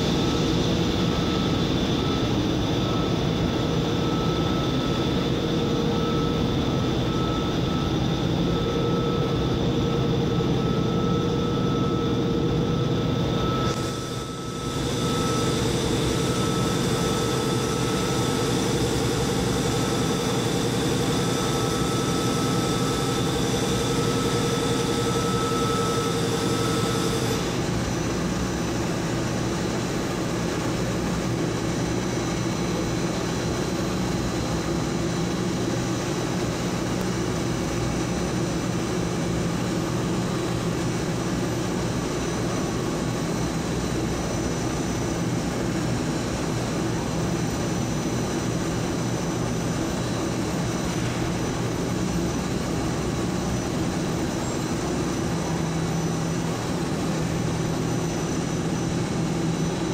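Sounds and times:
machinery hum: 0.0s - 59.9s
machinery whining tones: 0.0s - 59.9s.

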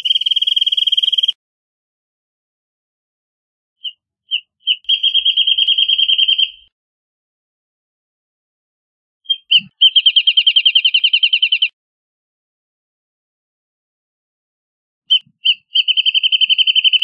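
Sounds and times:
bird singing: 0.0s - 1.4s, 3.8s - 6.7s, 9.2s - 11.8s, 15.1s - 17.0s.

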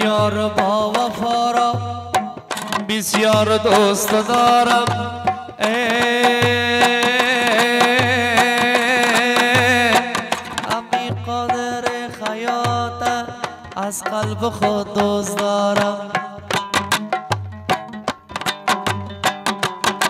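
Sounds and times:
folk music on lute and harmonium: 13.2s - 20.0s.

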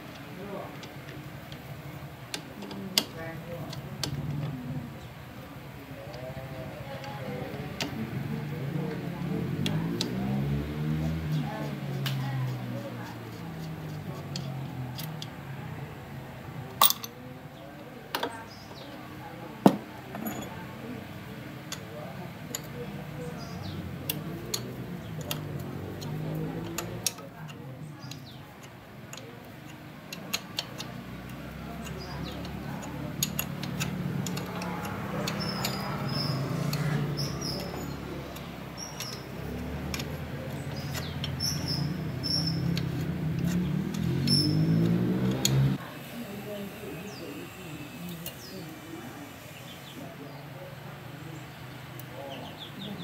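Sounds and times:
hands clicking and tapping on engine: 0.0s - 4.7s, 6.0s - 15.4s, 21.6s - 45.8s
tools clinking on metal: 16.8s - 17.2s, 19.7s - 20.7s.

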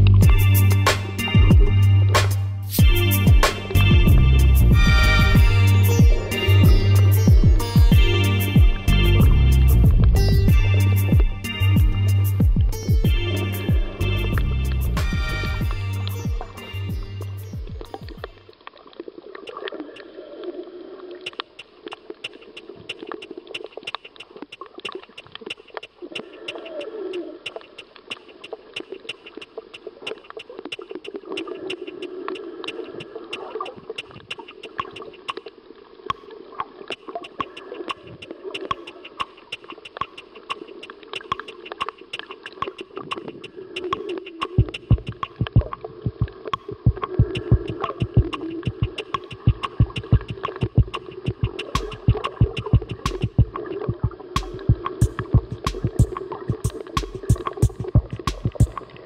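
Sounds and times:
low water noise: 0.0s - 59.0s
crackle of sharp clicks underwater: 17.7s - 59.0s.

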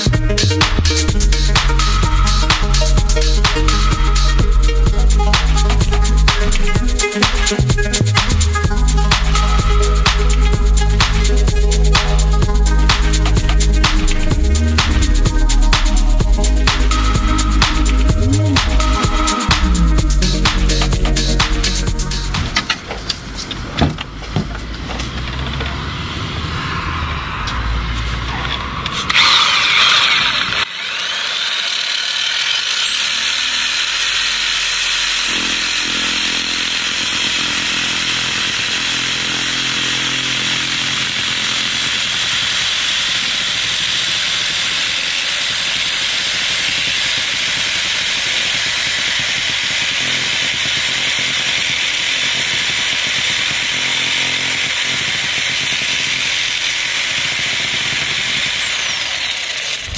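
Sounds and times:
cutting noise: 0.0s - 23.7s, 24.8s - 59.9s
power tool motor whine: 25.2s - 59.9s.

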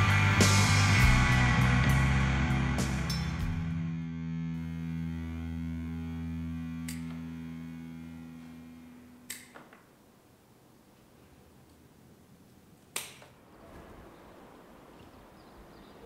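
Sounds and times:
electric guitar chord ringing: 0.0s - 9.3s.

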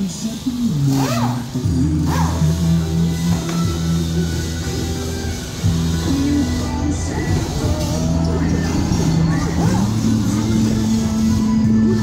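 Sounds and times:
background music with held low note: 0.0s - 12.0s.

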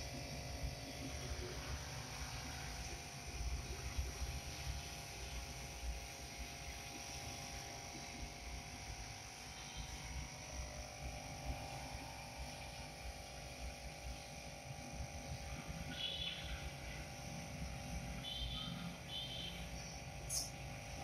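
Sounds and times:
low mechanical drone with hiss: 0.0s - 21.0s
faint high chirps: 15.8s - 16.7s, 18.2s - 20.7s.

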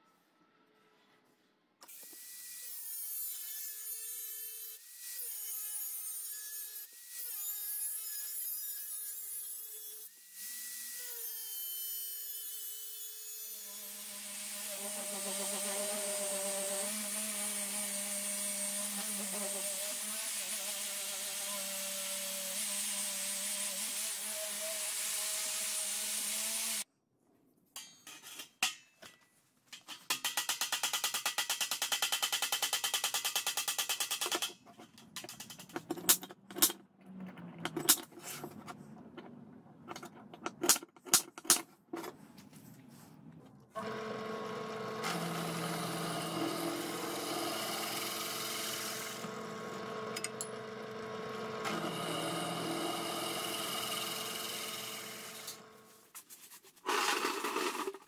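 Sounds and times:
angle grinder cutting steel: 1.9s - 26.9s, 43.8s - 55.9s.

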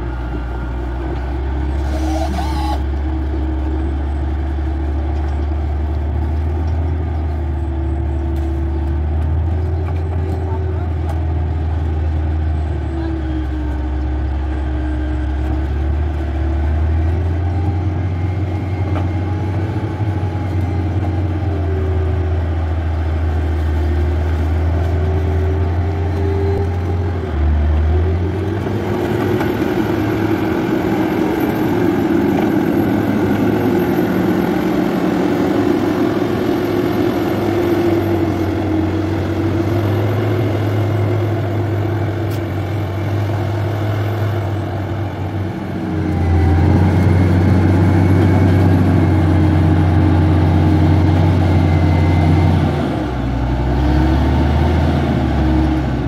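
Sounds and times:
diesel engine rumbling: 0.0s - 56.0s.

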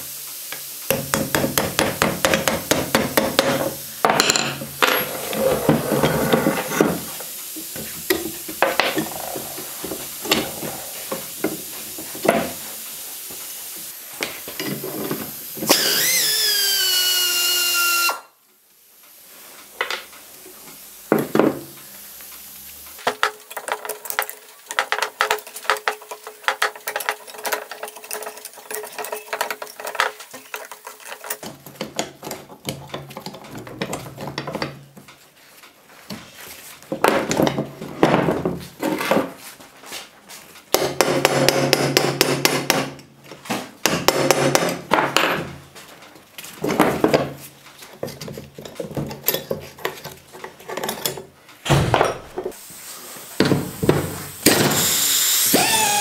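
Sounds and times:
rusty metal parts clinking: 23.2s - 31.6s.

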